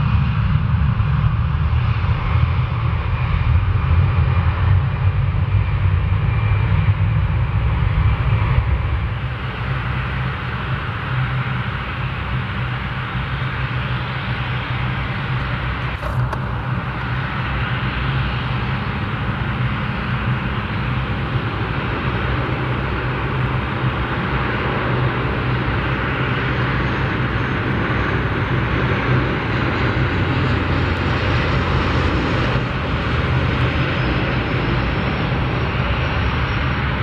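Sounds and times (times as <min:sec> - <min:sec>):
low engine drone: 0:00.0 - 0:37.0.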